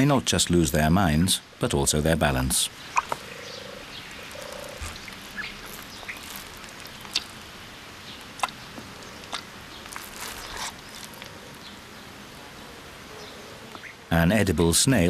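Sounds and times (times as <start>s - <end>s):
steady low hiss: 0.0s - 15.0s
frogs croaking: 2.3s - 14.1s.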